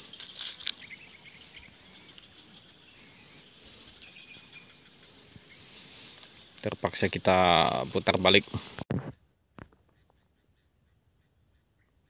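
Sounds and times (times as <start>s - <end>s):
insects trilling: 0.0s - 8.8s.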